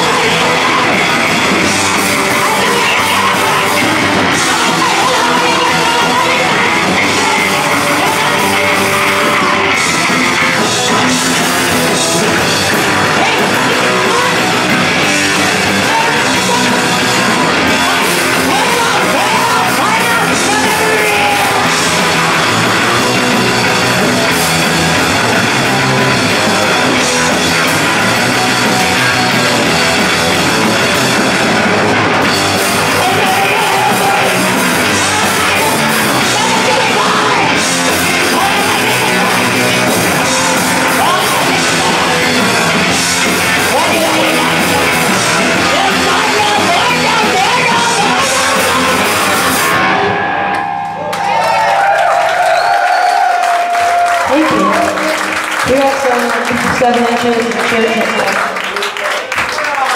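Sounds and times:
rock band playing: 0.0 - 59.9
woman singing and yelling: 2.3 - 8.7, 36.2 - 42.0, 45.6 - 49.1.

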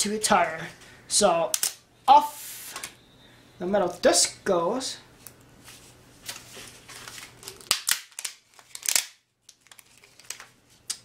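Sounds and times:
sharp plastic snaps: 1.5 - 1.8, 7.5 - 11.0.

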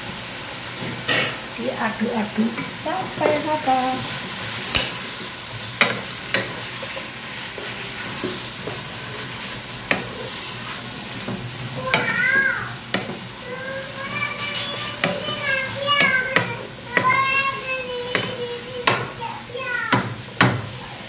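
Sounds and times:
food sizzling in a wok: 0.0 - 21.0
spatula knocking against pan: 5.8 - 7.1, 9.9 - 10.2, 11.2 - 13.3, 14.4 - 19.2, 19.9 - 20.7.

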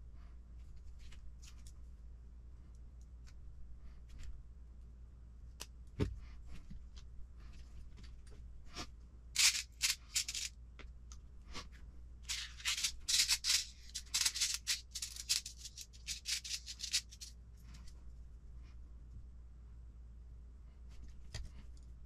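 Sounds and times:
plastic parts handled: 9.4 - 10.5, 12.3 - 17.3.

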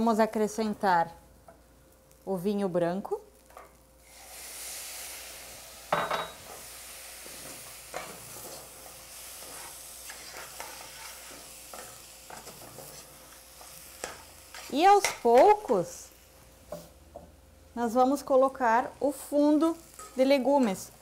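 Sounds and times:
food sizzling in pot: 2.0 - 17.0, 17.6 - 21.0.

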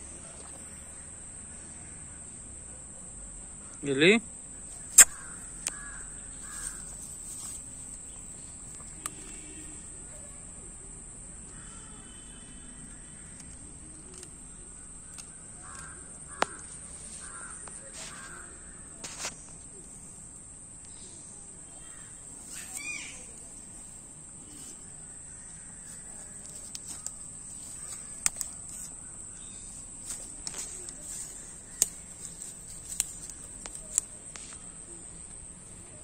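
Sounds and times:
insects droning in grass: 0.0 - 36.0
bird calling: 3.8 - 10.4, 20.9 - 34.8
sharp clicks: 4.8 - 6.0, 8.7 - 9.5, 13.3 - 16.6, 25.5 - 29.0, 29.7 - 34.6.

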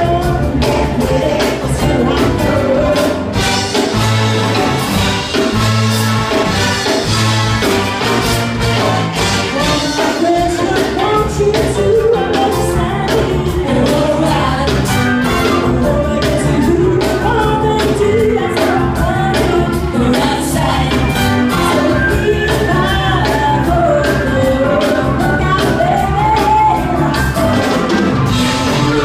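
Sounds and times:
woman singing lead: 0.0 - 5.5, 8.8 - 29.0
live soul band playing: 0.0 - 29.0
horns: 0.1 - 11.0, 13.7 - 16.5, 20.2 - 29.0.

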